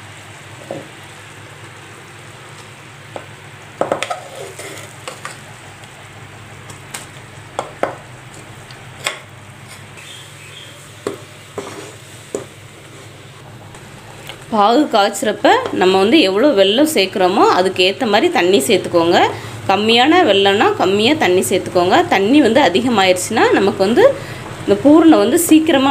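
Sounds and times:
sharp knocks and scrapes: 0:03.8 - 0:05.4, 0:11.0 - 0:13.1.

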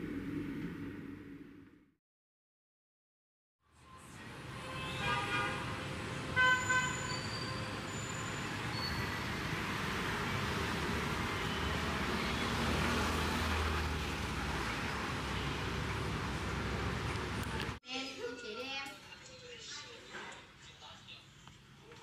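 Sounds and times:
passing vehicles: 0:03.9 - 0:17.8.

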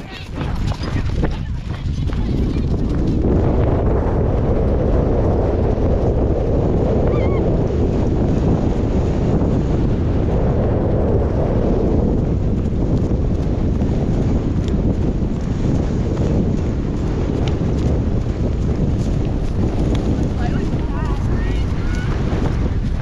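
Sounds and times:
horse hooves drumming: 0:00.0 - 0:23.0
wind buffeting microphone: 0:00.0 - 0:23.0.

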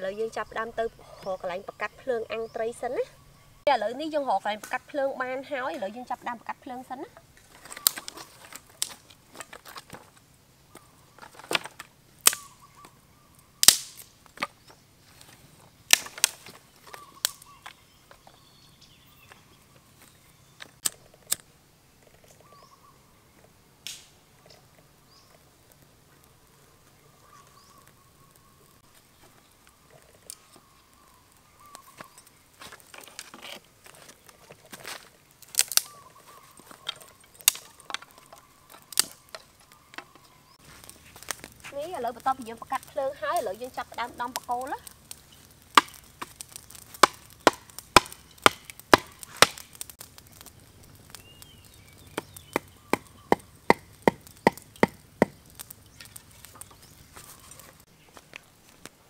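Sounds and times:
dry sticks snapping: 0:07.4 - 0:13.0, 0:13.6 - 0:14.6, 0:15.9 - 0:18.3, 0:20.0 - 0:21.5, 0:23.8 - 0:24.6, 0:28.9 - 0:59.0
dry leaves crumbled in hands: 0:15.0 - 0:20.8, 0:25.2 - 0:59.0.

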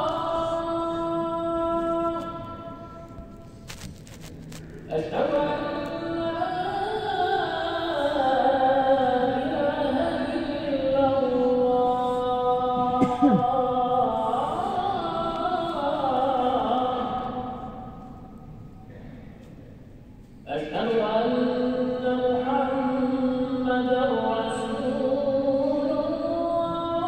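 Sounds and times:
man chanting: 0:04.8 - 0:17.7, 0:20.5 - 0:27.0.

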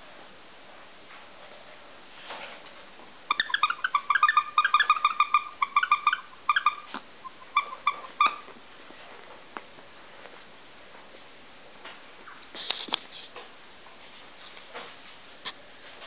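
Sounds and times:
puppy whimpering squeals: 0:03.3 - 0:08.5.

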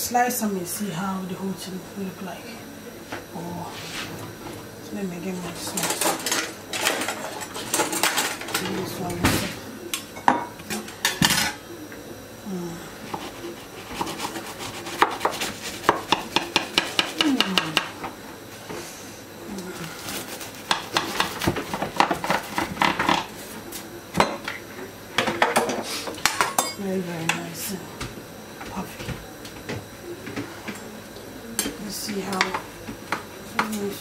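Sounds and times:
pastry crust crackling: 0:19.5 - 0:23.5.

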